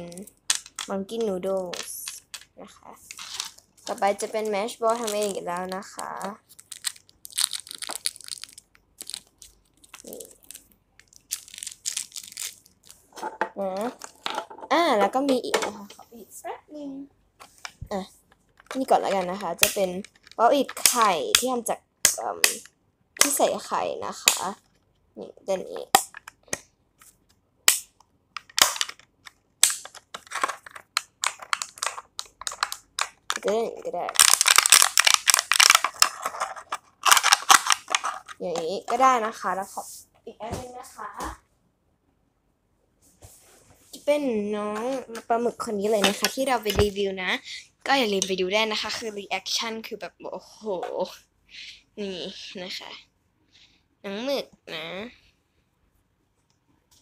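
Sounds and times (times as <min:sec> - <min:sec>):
plastic crinkling and crackling: 0:00.0 - 0:14.5, 0:17.5 - 0:21.5, 0:28.4 - 0:39.0
plastic pops and cracks: 0:18.4 - 0:23.4, 0:25.8 - 0:26.7, 0:27.6 - 0:38.4.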